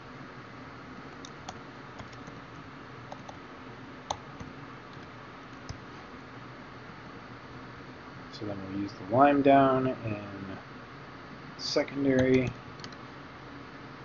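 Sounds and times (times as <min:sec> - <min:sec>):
computer keyboard clicks: 0:01.2 - 0:02.4, 0:03.1 - 0:03.4, 0:12.2 - 0:13.0.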